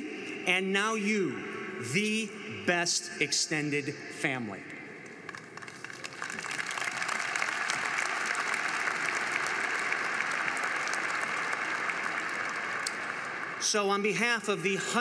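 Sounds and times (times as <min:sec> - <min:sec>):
large audience applauding: 0:05.3 - 0:13.7.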